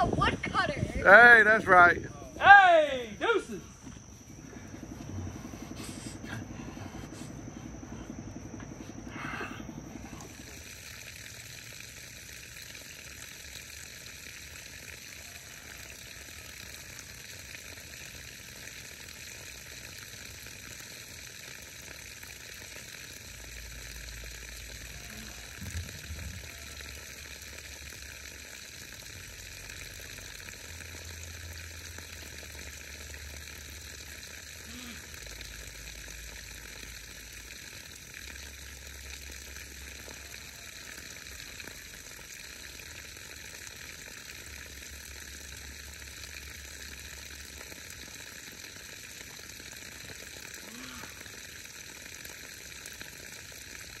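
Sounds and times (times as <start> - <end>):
humming background: 0.0 - 12.2, 23.2 - 28.4, 34.5 - 40.6
even hiss: 0.0 - 31.8
faint low rumble: 3.6 - 10.6.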